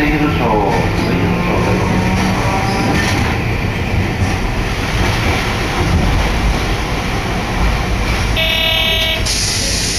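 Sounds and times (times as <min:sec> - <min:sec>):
streetcar wheels rumbling: 0:00.0 - 0:09.9
short pitched tone: 0:08.4 - 0:09.5.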